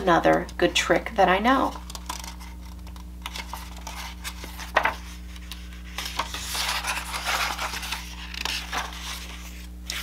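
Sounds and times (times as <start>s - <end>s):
steady low hum: 0.0s - 10.0s
book pages turning: 1.6s - 10.0s
paper rustling and sliding: 2.1s - 10.0s.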